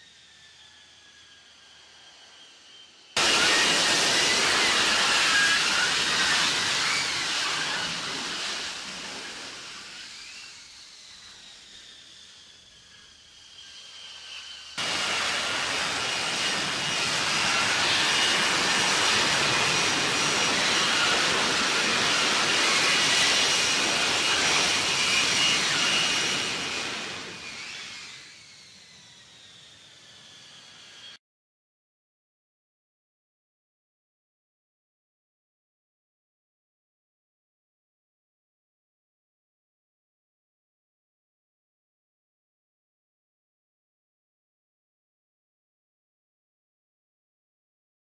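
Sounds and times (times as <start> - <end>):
jet engine roar with turbine whine: 0.0 - 31.2.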